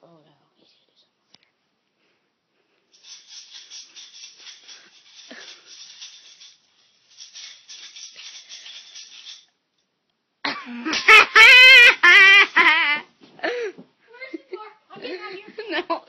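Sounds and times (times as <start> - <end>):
quick even rattling: 2.9 - 9.5.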